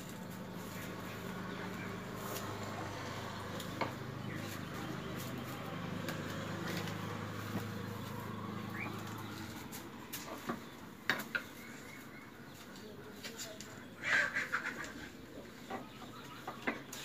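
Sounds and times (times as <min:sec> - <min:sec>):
low engine hum: 0:00.0 - 0:13.0
bird chirp: 0:00.0 - 0:14.1, 0:15.2 - 0:17.0.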